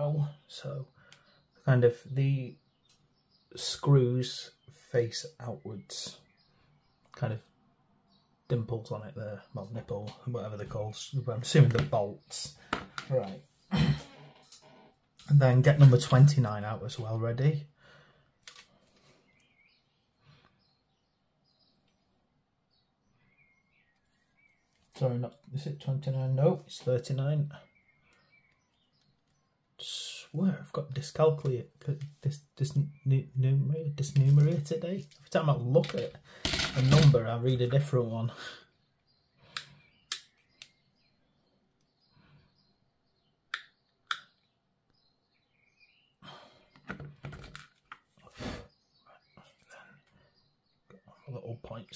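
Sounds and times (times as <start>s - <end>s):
parts and tools knocking and rustling: 12.6s - 13.2s, 35.1s - 37.2s, 46.7s - 48.1s
plastic parts clicking together: 34.2s - 37.2s.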